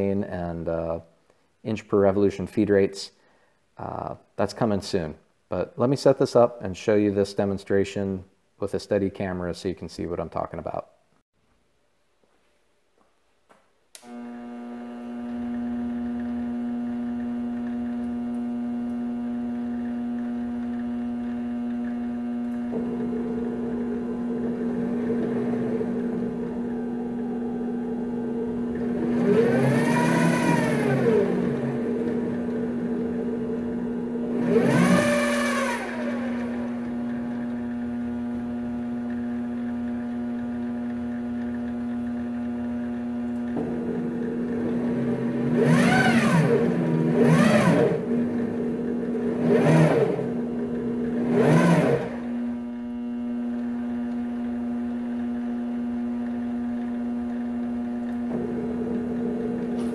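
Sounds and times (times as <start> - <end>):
lathe humming: 14.0 - 59.9
stepper motor whine: 14.0 - 59.9.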